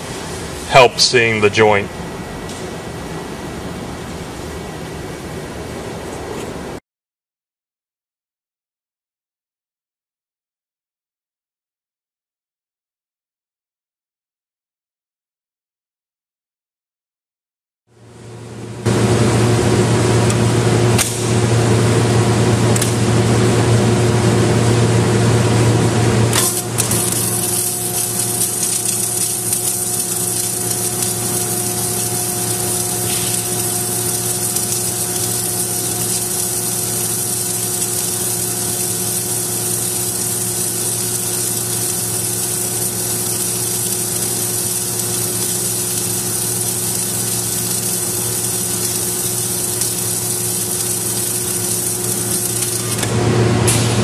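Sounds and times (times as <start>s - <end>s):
welding equipment hum: 18.0s - 54.0s.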